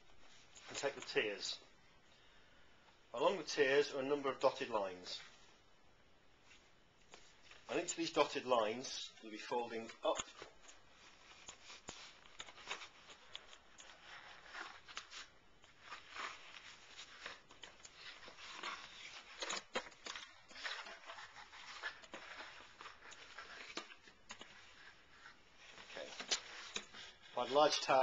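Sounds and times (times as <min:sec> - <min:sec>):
cardboard rustling and scraping: 0:13.9 - 0:28.0.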